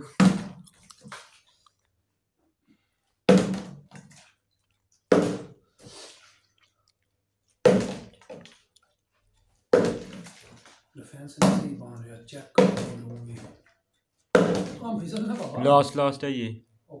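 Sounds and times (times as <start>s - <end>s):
plastic bottle landing on wooden table: 0.2s - 0.6s, 3.3s - 4.2s, 5.1s - 5.6s, 7.6s - 8.5s, 9.7s - 10.7s, 12.6s - 13.5s, 14.3s - 14.8s.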